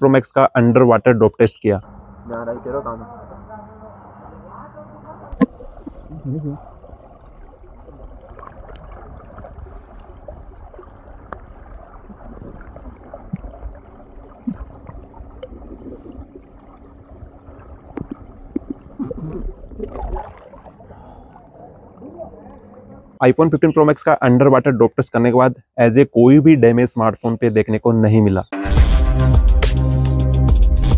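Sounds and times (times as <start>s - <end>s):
underwater gurgling and rumbling: 1.8s - 23.6s
water splashing: 3.1s - 23.8s
soft underwater knocks: 17.9s - 20.5s.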